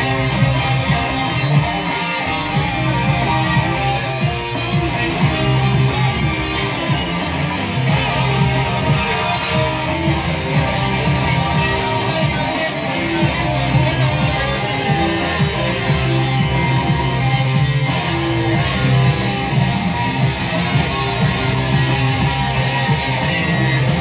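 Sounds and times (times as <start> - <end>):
electric guitar playing: 0.0 - 24.0
live band music: 0.0 - 24.0.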